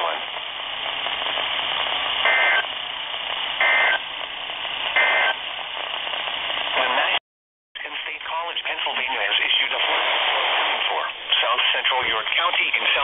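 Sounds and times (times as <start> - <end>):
radio static hiss: 0.0 - 7.2, 7.8 - 13.0
two-tone data bursts: 2.2 - 2.7, 3.6 - 4.0, 5.0 - 5.4.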